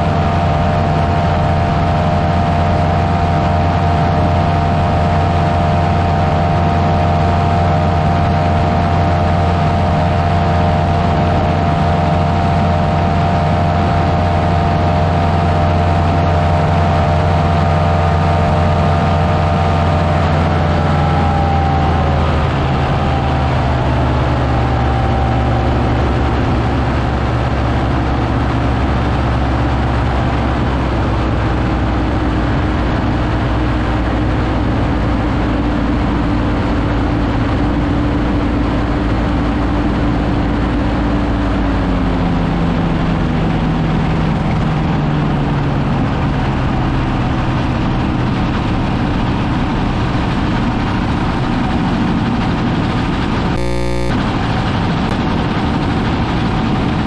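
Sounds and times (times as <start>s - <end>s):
rough rushing wind noise: 0.0s - 41.9s
light aircraft engine running: 0.0s - 57.0s.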